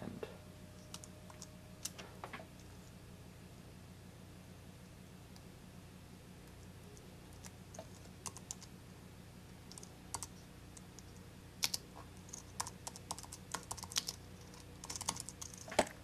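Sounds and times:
computer keyboard key clicks: 0:11.6 - 0:15.7.

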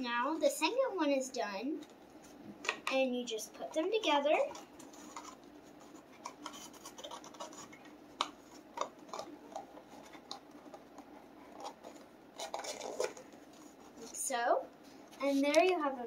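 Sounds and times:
card scratching and rubbing: 0:04.4 - 0:14.2.

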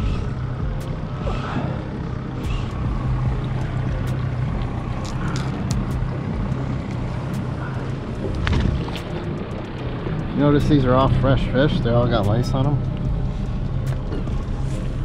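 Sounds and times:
boat motor humming: 0:00.0 - 0:15.0.

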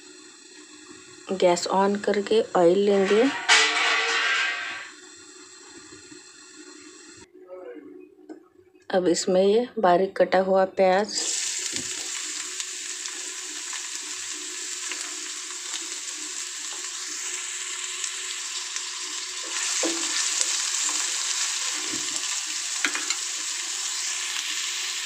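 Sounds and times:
onions sizzling in hot oil: 0:00.0 - 0:07.2, 0:11.1 - 0:25.0.

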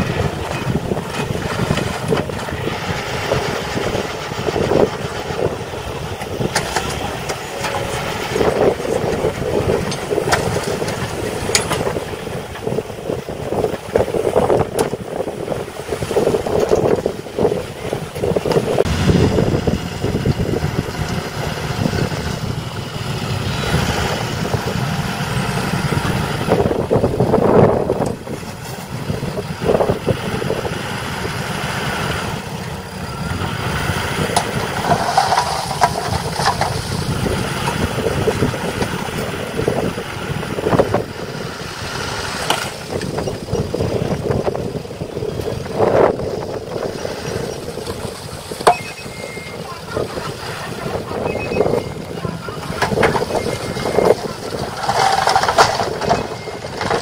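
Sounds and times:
diesel truck engine running: 0:00.0 - 0:57.0
hydraulic tipper bed rising: 0:00.0 - 0:57.0
soil sliding out: 0:33.0 - 0:43.4, 0:50.1 - 0:57.0.

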